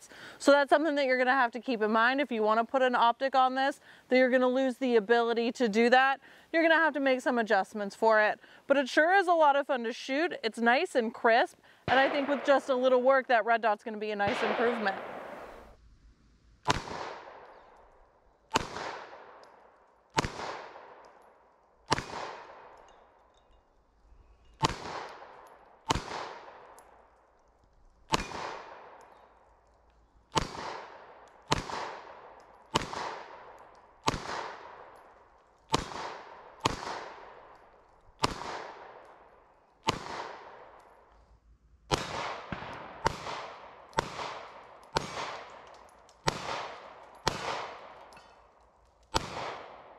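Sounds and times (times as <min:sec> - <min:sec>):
pistol shots echoing: 0:11.9 - 0:13.0, 0:14.2 - 0:15.8, 0:16.6 - 0:17.9, 0:18.5 - 0:23.0, 0:24.6 - 0:27.1, 0:28.1 - 0:29.3, 0:30.3 - 0:41.0, 0:41.9 - 0:48.5, 0:49.1 - 0:49.9.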